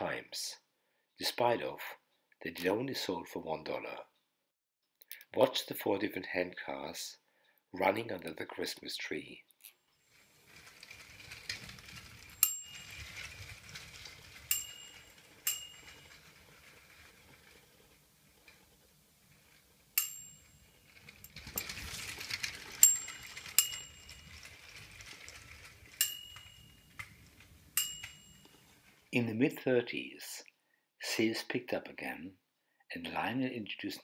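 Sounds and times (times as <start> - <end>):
clockwork toy whirring: 10.0 - 29.1.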